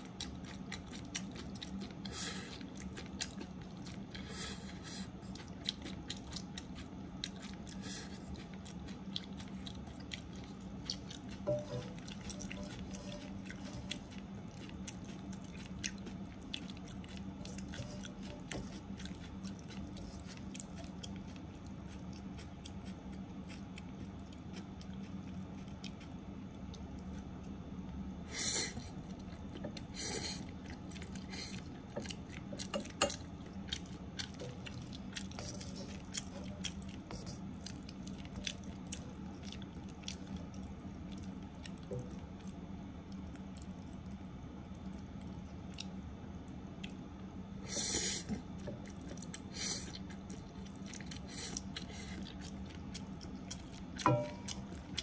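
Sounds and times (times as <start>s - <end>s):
low hum: 8.4s - 21.3s, 50.2s - 55.0s.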